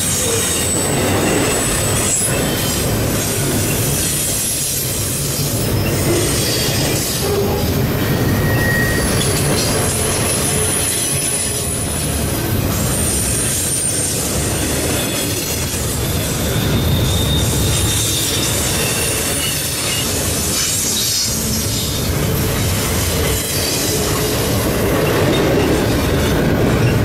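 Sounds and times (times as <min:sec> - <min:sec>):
freight train rumbling and rattling: 0:00.0 - 0:27.0
high-pitched wheel squeals: 0:05.8 - 0:11.8, 0:16.0 - 0:22.0.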